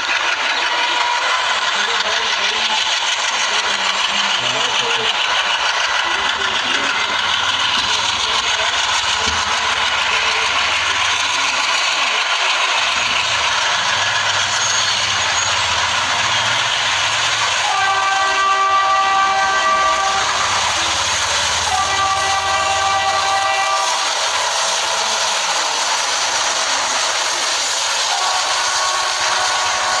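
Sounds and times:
diesel locomotive engines running: 0.0s - 30.0s
multi-tone locomotive horn: 17.3s - 24.6s, 28.0s - 30.0s.

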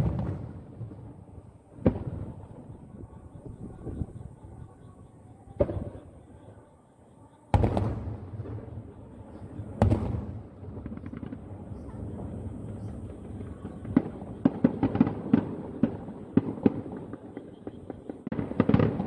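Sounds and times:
firework shells booming: 0.0s - 1.1s, 1.7s - 2.9s, 7.5s - 19.0s
small firework crackles: 0.0s - 19.0s.

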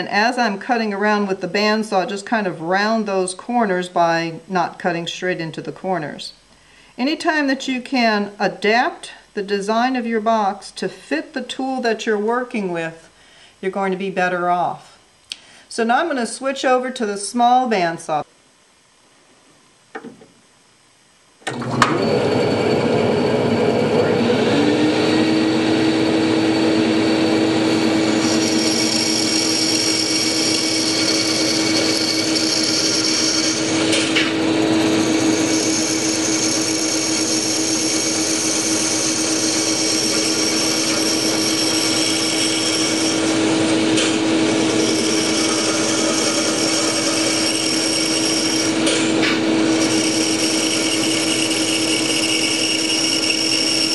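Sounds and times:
bandsaw motor running: 21.5s - 53.9s
bandsaw blade cutting wood: 26.4s - 53.9s.

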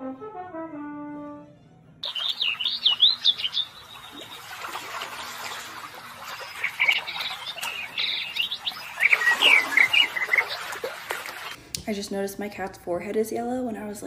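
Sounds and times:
small birds chirping: 2.0s - 11.6s.

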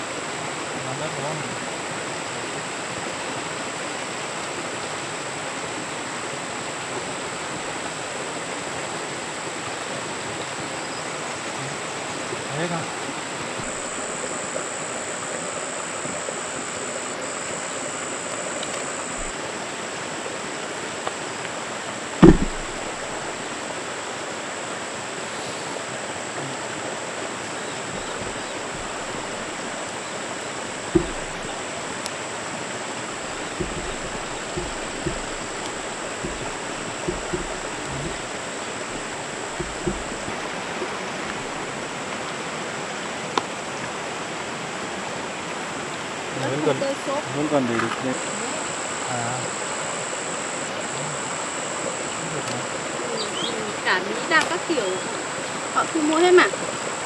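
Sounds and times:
heavy rain hissing: 0.0s - 57.0s
faint knocks: 13.6s - 14.6s, 18.2s - 19.4s, 22.2s - 23.5s, 27.9s - 29.8s, 30.7s - 32.0s, 33.1s - 41.6s
loud low thump: 19.2s - 19.4s, 22.2s - 23.5s, 27.9s - 29.8s, 30.8s - 31.9s, 33.1s - 40.6s.

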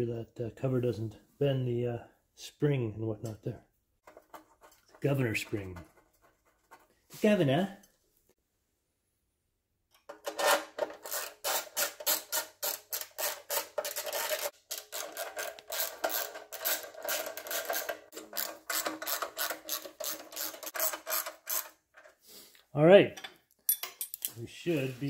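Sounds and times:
hand tool clicking and scraping: 9.9s - 22.2s, 23.2s - 24.4s.

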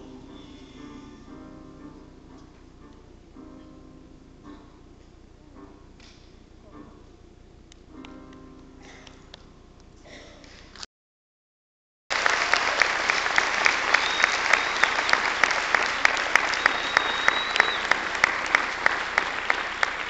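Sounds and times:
audience applause: 12.1s - 20.0s.

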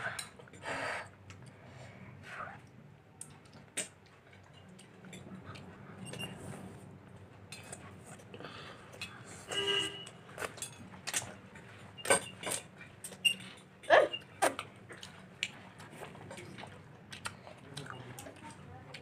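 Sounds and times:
chewing: 14.4s - 19.0s.

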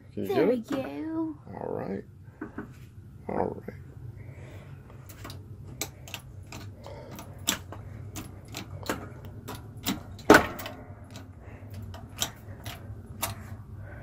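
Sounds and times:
hand press clicks and clanks: 5.1s - 13.6s.

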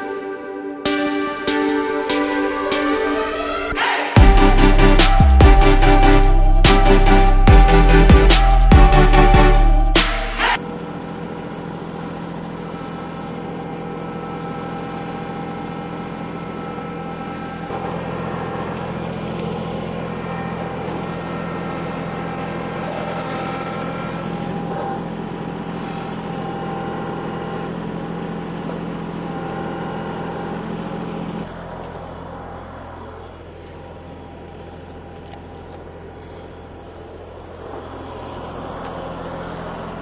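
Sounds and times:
engine running: 0.0s - 40.0s.

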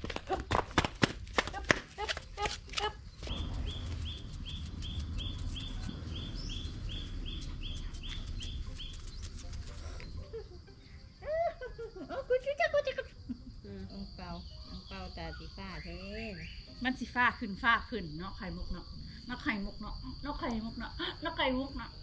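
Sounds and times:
small bird chirping: 3.0s - 11.2s, 13.4s - 17.1s
low rumble: 3.2s - 9.0s.

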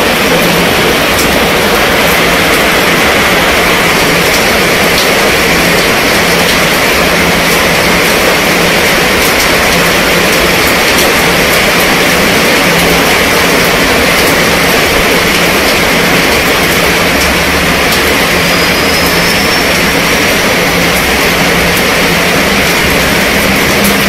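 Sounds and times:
heavy rain on tent and pavement: 0.0s - 24.0s
raindrop taps: 0.1s - 24.0s.

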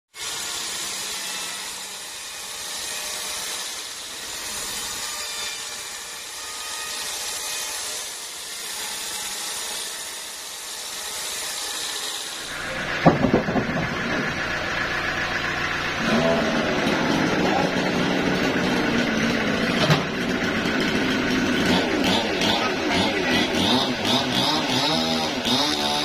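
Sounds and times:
band saw blade cutting log: 0.2s - 26.0s.

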